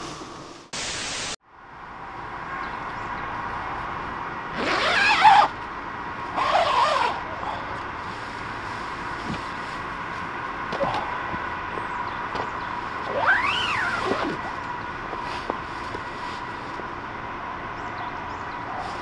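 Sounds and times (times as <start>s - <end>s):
static hiss: 0.0s - 1.4s
tent door zipper: 4.6s - 5.5s, 6.4s - 7.2s, 13.1s - 14.5s.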